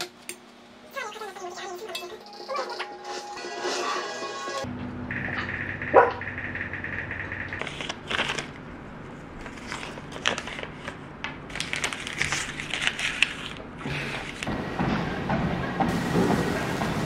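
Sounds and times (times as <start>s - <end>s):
paper crinkling and crackling: 7.6s - 8.7s, 9.4s - 14.5s.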